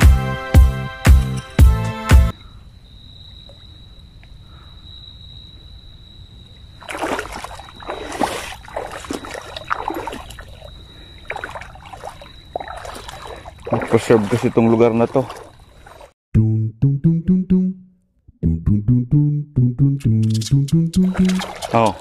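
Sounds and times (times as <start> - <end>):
shallow water splashing: 6.8 - 16.2, 21.0 - 22.0.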